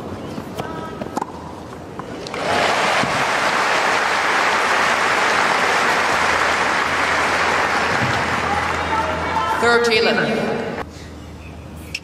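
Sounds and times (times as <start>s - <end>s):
crowd applauding: 2.3s - 9.6s.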